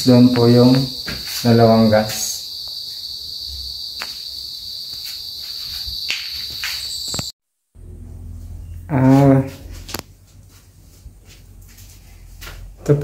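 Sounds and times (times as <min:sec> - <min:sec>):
high-pitched insect trill: 0:00.0 - 0:07.4.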